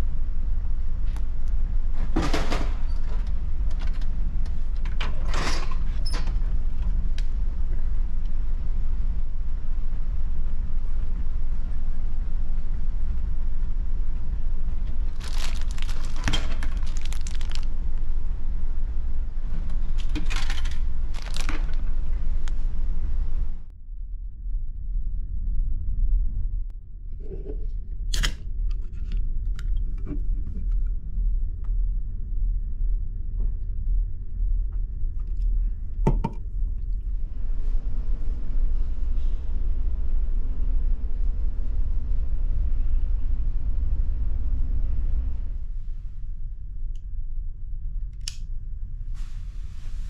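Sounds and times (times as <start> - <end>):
ship engines low drone: 6.4 - 20.1, 30.7 - 50.0
vending machine clatter: 19.9 - 21.8.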